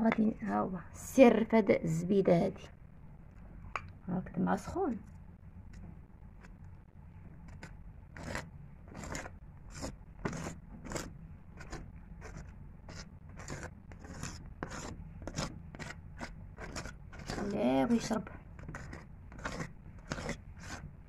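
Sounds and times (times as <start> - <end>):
knife scraping bread crust: 7.5 - 20.9.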